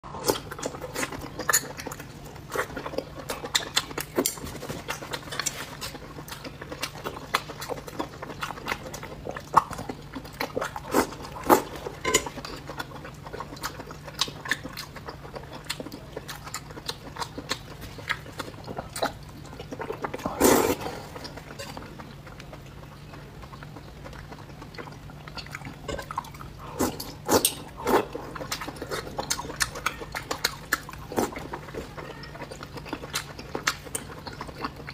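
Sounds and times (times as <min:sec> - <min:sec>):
wet chewing: 0:00.0 - 0:34.9
slurping food: 0:20.1 - 0:21.4.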